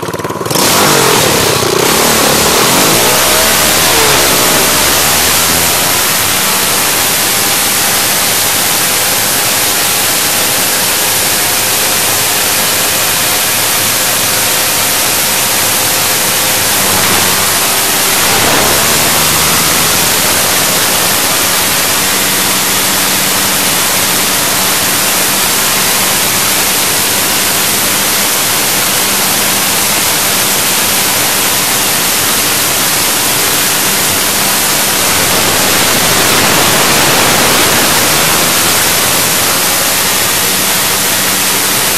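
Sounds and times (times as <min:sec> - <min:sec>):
faint dirt bike engine: 0:00.0 - 0:41.9.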